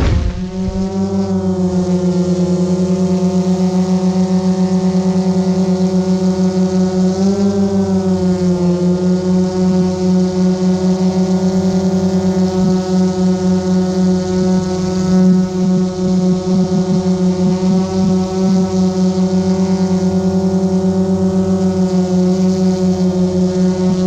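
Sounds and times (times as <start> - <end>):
drone propellers buzzing: 0.0 - 3.1, 14.3 - 24.0.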